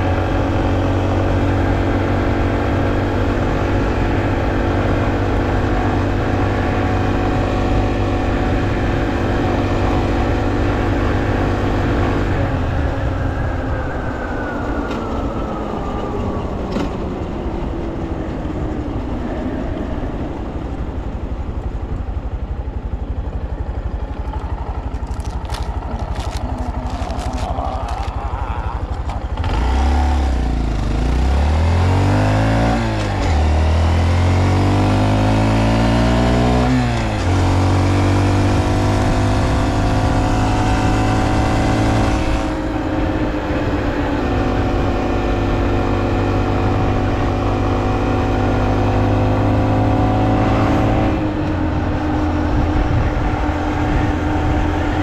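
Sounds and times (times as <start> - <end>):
motorcycle engine running: 15.6 - 55.0.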